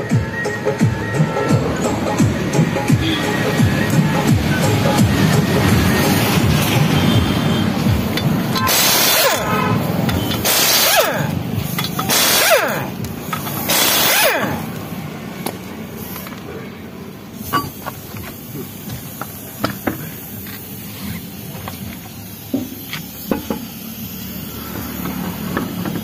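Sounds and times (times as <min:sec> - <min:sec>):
music: 0:00.0 - 0:08.6
impact wrench hammering: 0:07.9 - 0:14.8, 0:22.5 - 0:23.8
metallic clicks and knocks: 0:11.7 - 0:12.1.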